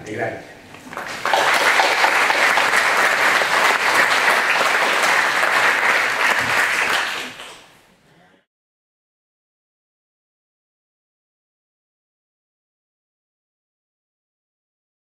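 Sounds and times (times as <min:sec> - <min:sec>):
audience applause: 0:01.0 - 0:07.7.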